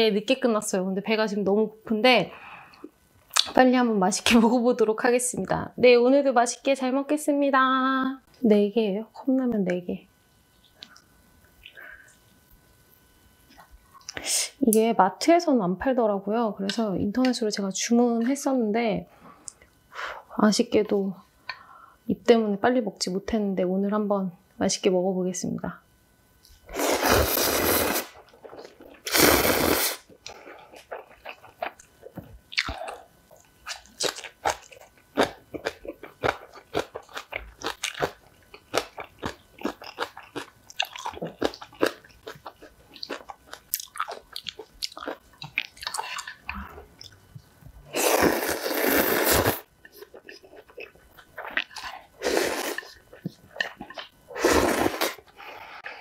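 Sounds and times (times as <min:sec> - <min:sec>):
person slurping noodles: 0:26.7 - 0:28.2, 0:29.0 - 0:30.0, 0:47.9 - 0:49.6, 0:51.6 - 0:53.0, 0:54.3 - 0:55.3
wet chewing: 0:30.2 - 0:47.5, 0:48.9 - 0:55.2.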